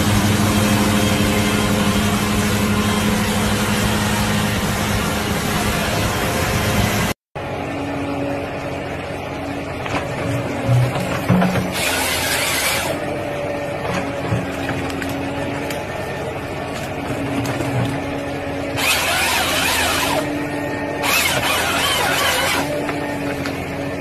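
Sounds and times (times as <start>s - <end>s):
harvester engine and hydraulic hum: 0.0s - 24.0s
harsh bursts of cutting noise: 11.7s - 13.1s, 18.8s - 20.3s, 21.0s - 22.8s.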